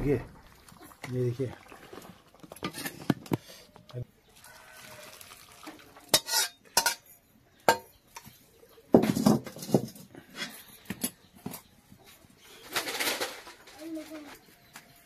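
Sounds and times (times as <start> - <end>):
steel ladle and bowls clinking: 5.5 - 8.3.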